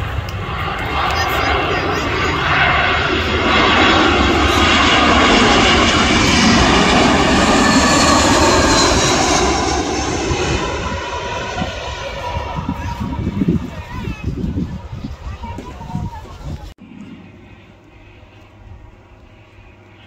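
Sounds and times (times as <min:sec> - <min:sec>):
jet airliner passing overhead: 0:00.0 - 0:20.0.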